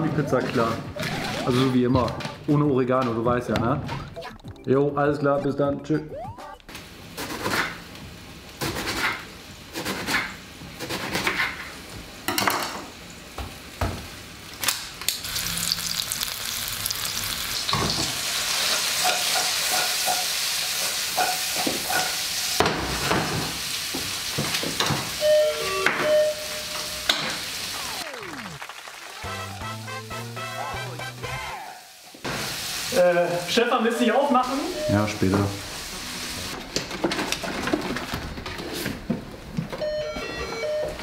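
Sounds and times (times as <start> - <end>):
food sizzling in a pan: 15.2 - 36.6.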